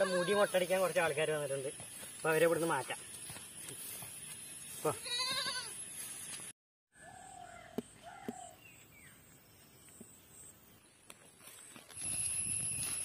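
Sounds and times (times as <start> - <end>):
young goat bleating: 0.0 - 0.7, 4.9 - 5.8.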